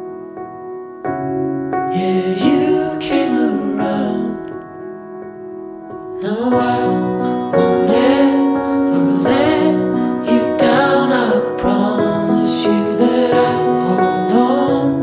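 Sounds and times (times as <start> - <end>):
piano song with sung melody: 0.0 - 15.0.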